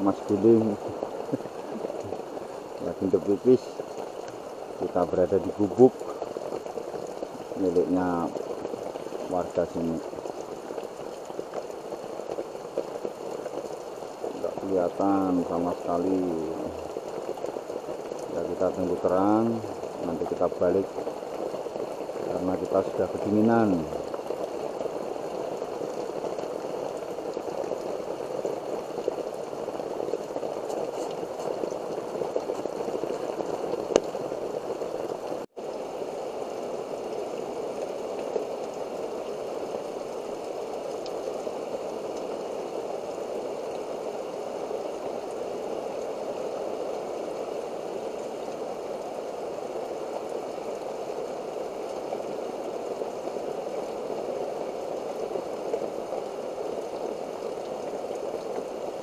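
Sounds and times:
heavy rain: 0:00.0 - 0:59.0.

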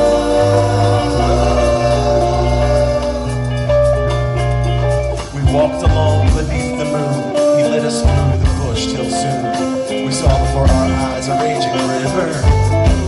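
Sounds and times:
acoustic guitar: 0:00.0 - 0:13.0
electric bass: 0:00.0 - 0:13.0
keyboard: 0:00.0 - 0:13.0.

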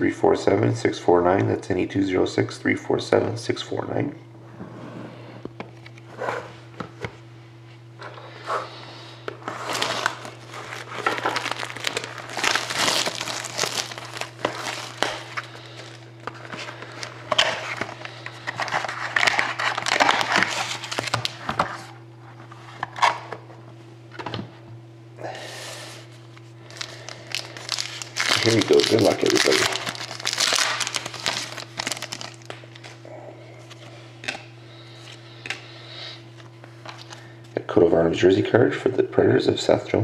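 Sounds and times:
steady low hum: 0:00.0 - 0:40.0
plastic wrap crinkling: 0:09.5 - 0:21.4, 0:26.6 - 0:33.0.

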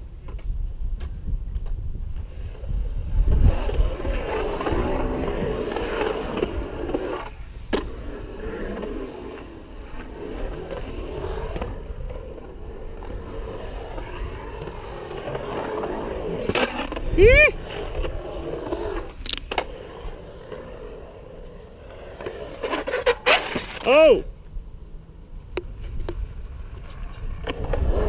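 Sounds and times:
skateboard wheels rolling on concrete: 0:00.0 - 0:28.0.

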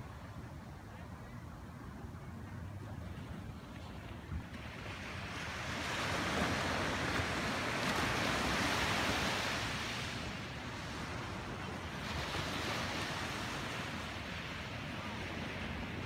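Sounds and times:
ocean waves washing onto beach: 0:02.9 - 0:16.0.

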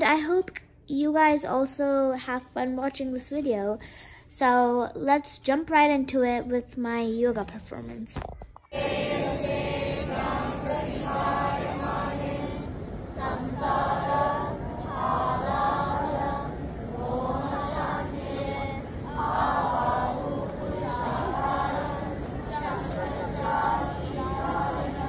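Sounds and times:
group chanting in unison: 0:08.7 - 0:25.0.

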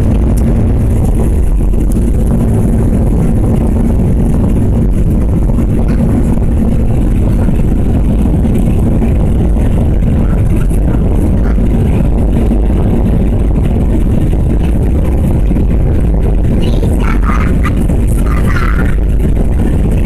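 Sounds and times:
airliner engines roaring: 0:00.0 - 0:20.0
takeoff roll rumble: 0:00.0 - 0:20.0.

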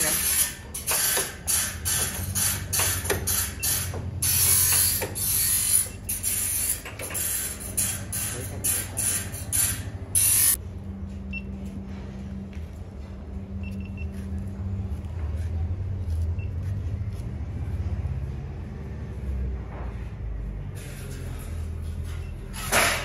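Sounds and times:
rasping hissing saw bursts: 0:00.0 - 0:10.6
low motor hum: 0:09.9 - 0:22.7.

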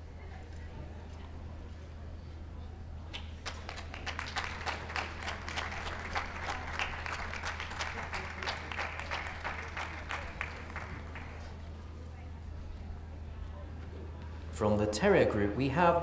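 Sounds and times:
audience applauding: 0:03.4 - 0:11.6.

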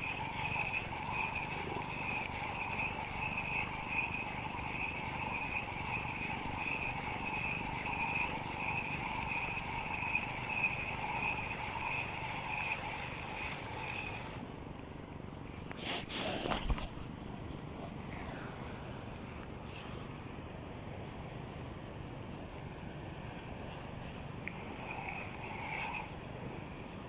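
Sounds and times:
fishing reel whirring: 0:00.0 - 0:14.6, 0:22.8 - 0:27.0.

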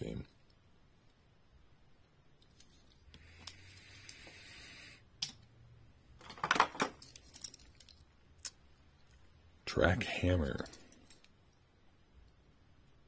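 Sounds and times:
plastic clattering: 0:06.2 - 0:08.0.

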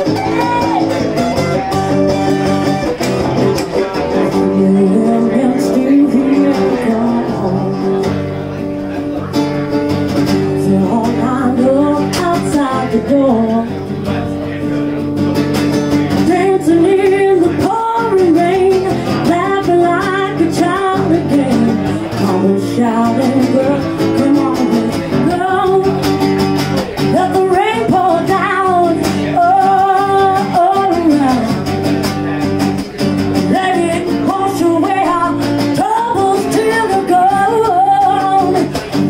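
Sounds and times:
acoustic guitar: 0:00.0 - 0:39.0
woman singing: 0:04.3 - 0:08.2, 0:10.4 - 0:13.8, 0:16.1 - 0:26.4, 0:27.0 - 0:31.8, 0:33.4 - 0:39.0.

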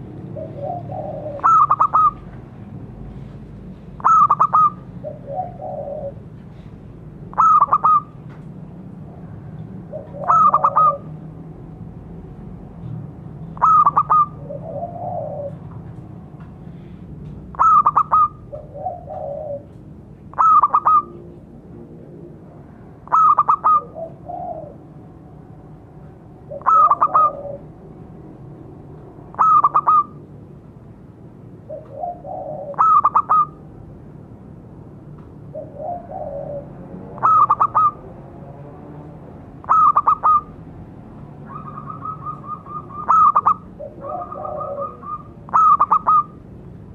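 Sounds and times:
dove cooing in staccato bursts: 0:00.0 - 0:02.3, 0:04.0 - 0:06.4, 0:07.2 - 0:08.2, 0:09.8 - 0:11.3, 0:13.6 - 0:15.8, 0:17.5 - 0:19.7, 0:20.3 - 0:21.2, 0:23.0 - 0:25.1, 0:26.4 - 0:27.9, 0:29.2 - 0:30.2, 0:31.6 - 0:33.6, 0:35.5 - 0:38.1, 0:39.5 - 0:40.6, 0:41.4 - 0:46.5
soft low dove coos: 0:26.5 - 0:27.8, 0:35.5 - 0:38.0, 0:41.5 - 0:46.3.

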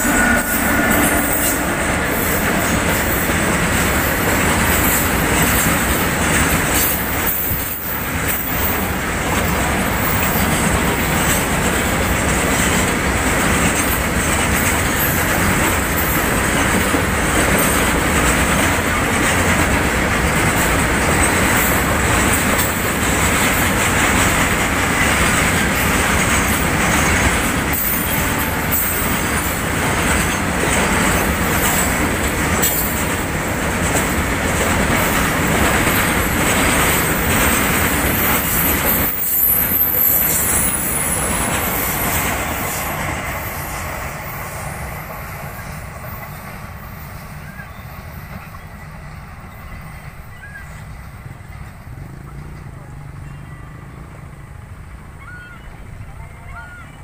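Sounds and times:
high wheel squeal: 0:00.0 - 0:03.4, 0:36.9 - 0:44.8
train wheels rumbling on rails: 0:00.0 - 0:57.0.

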